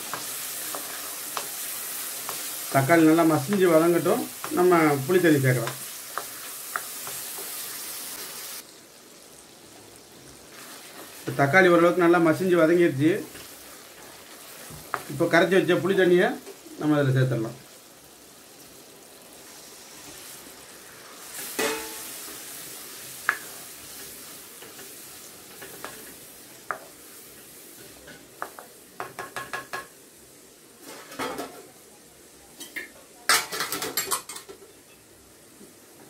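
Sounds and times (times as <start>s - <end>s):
wooden spoon scraping a pan: 0.0s - 8.3s
liquid sizzling in hot oil: 0.0s - 31.9s
spoon knocking on pan: 21.6s - 22.0s, 28.4s - 29.9s.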